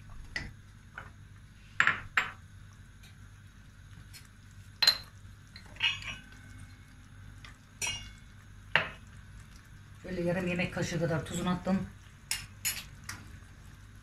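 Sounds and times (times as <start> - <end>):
dishes and utensils clinking: 4.8 - 6.4, 7.8 - 8.2.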